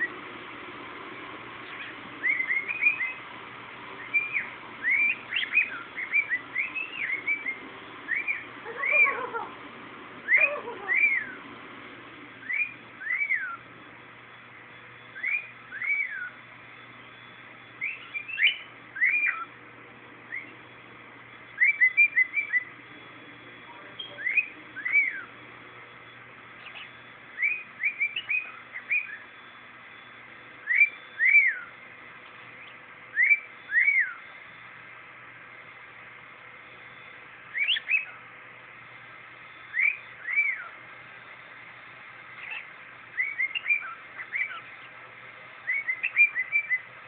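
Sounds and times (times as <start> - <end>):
cockatiel chirping: 1.6 - 3.2, 4.0 - 9.5, 10.2 - 11.4, 12.4 - 13.6, 15.2 - 16.4, 17.8 - 19.5, 20.3 - 20.6, 21.5 - 22.7, 23.7 - 25.4, 26.6 - 29.3, 30.6 - 31.8, 32.6 - 34.2, 37.5 - 38.2, 39.7 - 40.8, 42.4 - 44.9, 45.6 - 46.9
cockatiel whistling: 1.6 - 3.2, 4.0 - 9.5, 10.2 - 11.4, 12.4 - 13.7, 15.1 - 16.4, 17.1 - 19.6, 20.3 - 20.6, 21.5 - 22.8, 23.7 - 25.4, 26.6 - 31.8, 32.6 - 34.4, 37.5 - 38.2, 39.5 - 40.8, 42.4 - 44.9, 45.6 - 46.9.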